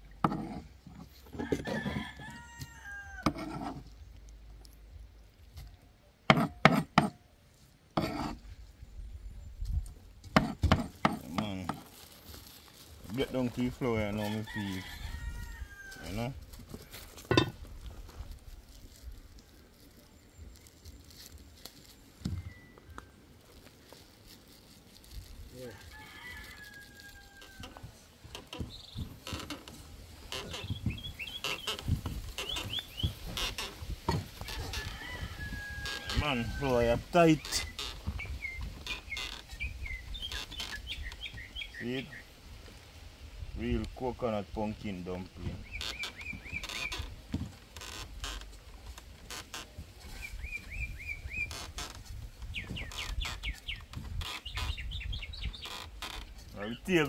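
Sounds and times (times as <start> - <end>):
birds chirping: 28.4 - 29.6, 30.2 - 42.4, 44.8 - 47.4, 49.3 - 57.0.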